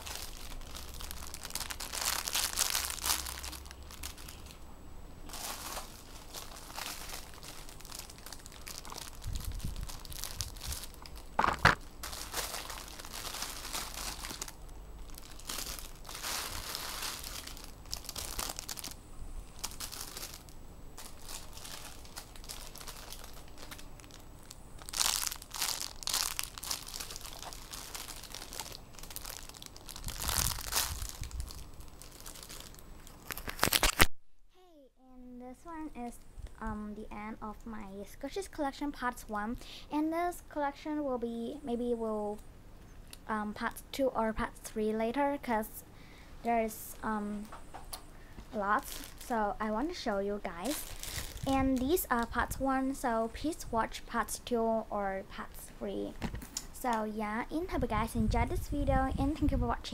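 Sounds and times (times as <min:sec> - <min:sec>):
plastic bags crinkling: 0:00.0 - 0:04.6, 0:05.2 - 0:34.1, 0:48.5 - 0:52.6.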